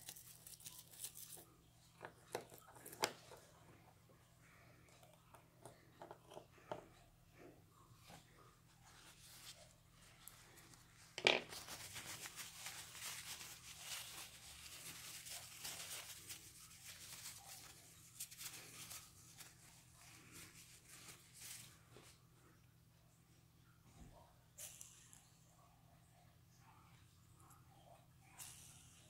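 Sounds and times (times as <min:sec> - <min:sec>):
paper towel rustling: 0:08.0 - 0:22.2.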